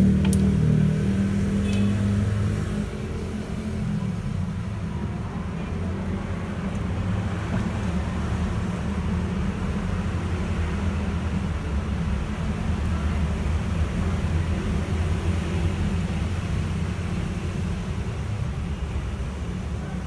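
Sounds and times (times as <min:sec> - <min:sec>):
low motor hum: 0:00.0 - 0:09.8.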